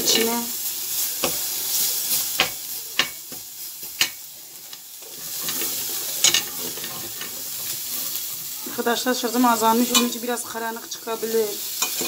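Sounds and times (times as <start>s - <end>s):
meat sizzling in oil: 0.0s - 12.0s
metal spoon clinking on pot: 5.2s - 7.6s, 9.8s - 10.2s, 11.8s - 12.0s.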